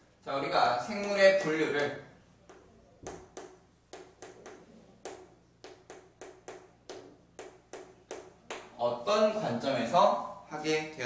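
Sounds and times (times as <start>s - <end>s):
chalk writing on chalkboard: 2.4s - 8.7s.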